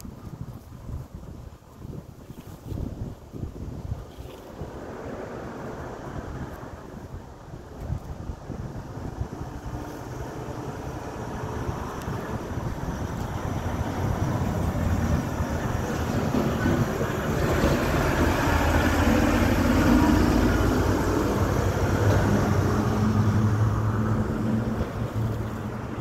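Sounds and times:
low engine hum: 4.4s - 26.0s
vehicle passing: 9.3s - 26.0s.

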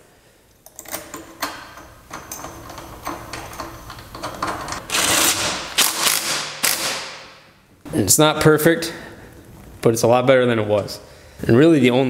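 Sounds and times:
metal washers and nut clicking: 0.6s - 6.8s
cordless impact tool bursts: 4.9s - 7.3s.

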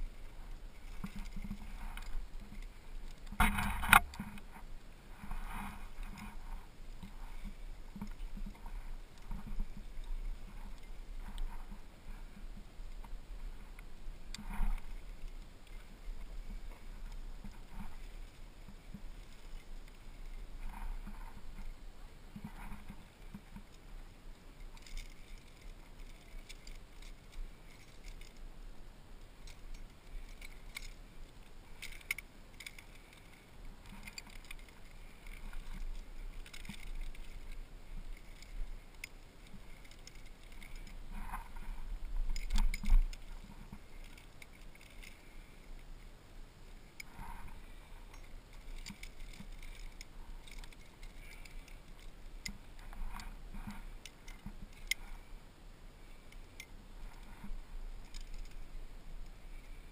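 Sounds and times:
metal climbing gear clinking: 0.2s - 12.2s, 24.5s - 28.5s, 29.4s - 46.0s, 46.8s - 55.3s, 56.1s - 59.9s.

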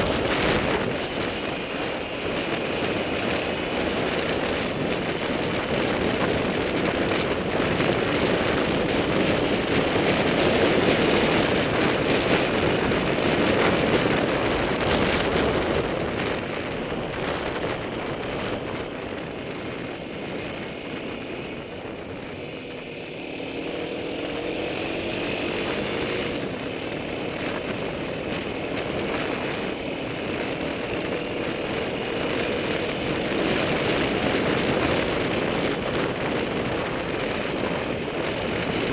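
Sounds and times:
motorcycle engine running: 0.0s - 38.9s
wind rushing: 0.0s - 38.9s.

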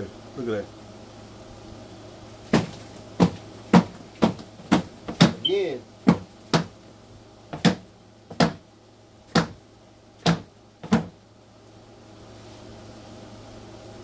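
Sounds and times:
sharp knocks: 2.5s - 5.4s, 6.0s - 6.7s, 7.5s - 8.6s, 9.3s - 9.6s, 10.2s - 11.1s.

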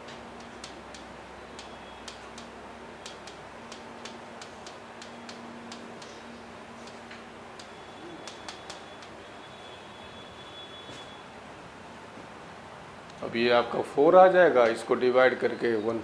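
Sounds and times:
electrical hum and hiss: 0.0s - 16.0s
stylus tapping on display board: 0.1s - 6.3s, 6.9s - 9.2s.

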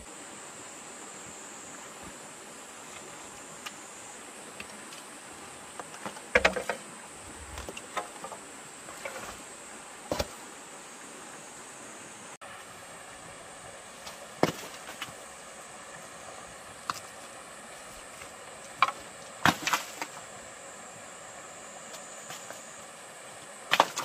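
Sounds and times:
stones and wooden pole clattering: 5.8s - 9.4s, 10.1s - 10.4s, 14.0s - 15.2s, 17.9s - 20.3s, 23.7s - 24.0s
high insect buzz: 13.4s - 24.0s.

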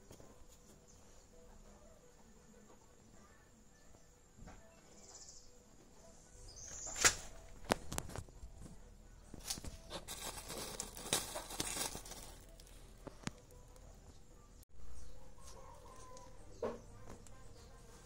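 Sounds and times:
plastic sheet rustling: 9.4s - 12.9s.

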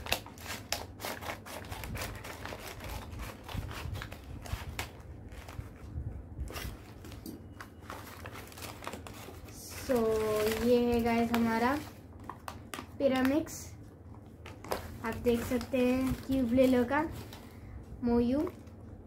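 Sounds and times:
scissors snipping paper: 0.0s - 5.5s
paper rustling: 0.0s - 13.5s
paper crinkling: 0.0s - 17.6s.

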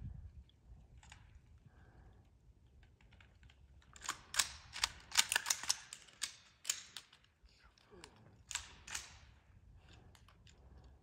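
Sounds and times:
sharp clicks and snaps: 2.6s - 7.3s, 8.0s - 9.3s.

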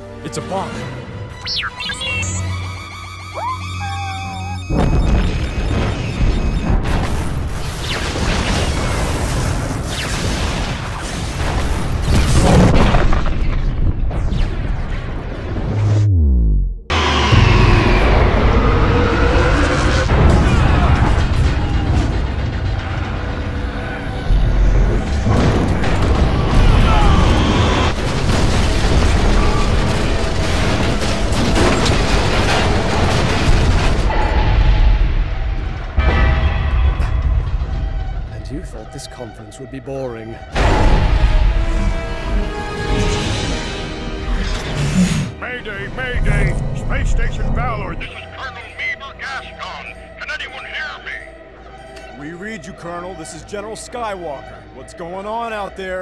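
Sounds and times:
explosion booms and blasts: 4.7s - 38.7s, 40.5s - 42.2s.

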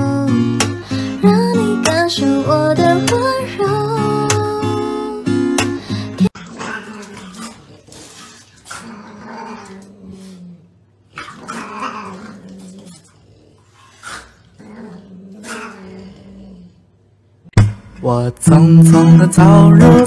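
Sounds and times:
small dog growling: 6.2s - 17.1s.

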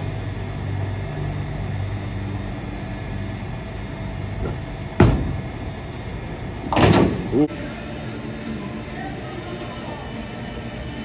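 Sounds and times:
bowling pins impact: 4.4s - 5.5s.

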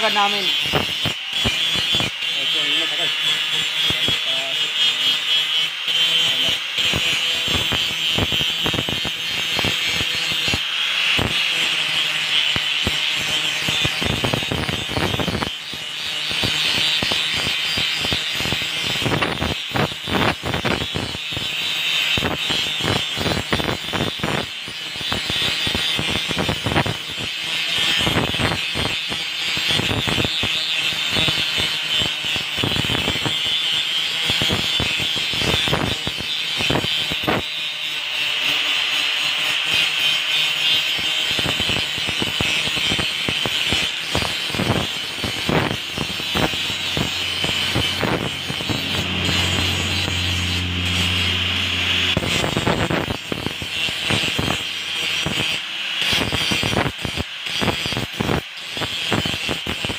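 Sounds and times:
angle grinder whine: 0.0s - 59.9s
grinding on metal: 0.0s - 59.9s
low hum: 45.8s - 55.2s.

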